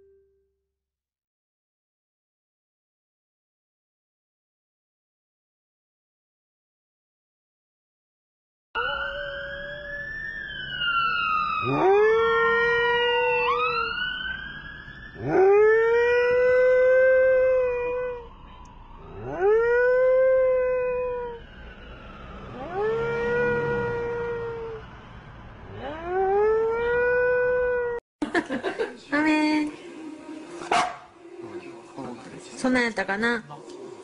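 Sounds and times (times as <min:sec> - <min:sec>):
dog howling: 0:08.8 - 0:10.3, 0:11.6 - 0:14.0, 0:15.2 - 0:18.3, 0:19.1 - 0:21.4, 0:22.5 - 0:24.9, 0:25.8 - 0:28.0
high wail falling in pitch: 0:08.8 - 0:14.1, 0:22.4 - 0:24.9.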